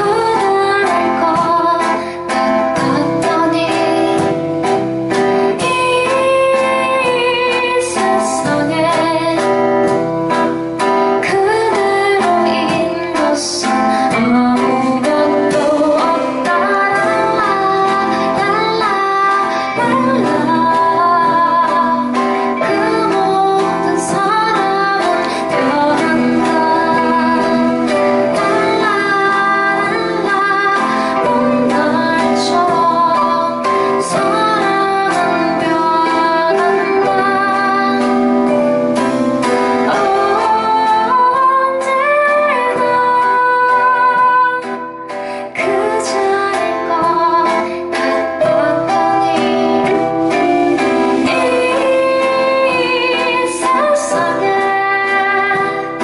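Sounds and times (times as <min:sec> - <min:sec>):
live band playing: 0:00.0 - 0:56.0
woman singing: 0:00.0 - 0:56.0.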